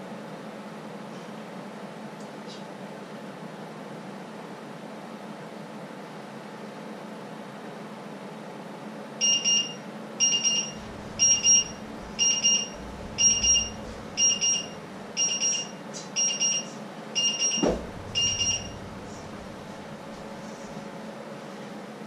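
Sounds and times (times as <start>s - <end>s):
timer alarm beeping: 9.2s - 19.7s
knock: 17.6s - 18.0s.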